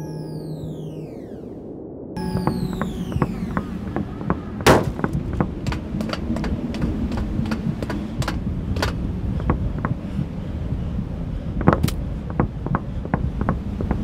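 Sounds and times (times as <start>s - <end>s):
steady low rumble: 0.0s - 14.0s
sharp knocks and clicks: 2.2s - 10.0s, 11.6s - 14.0s.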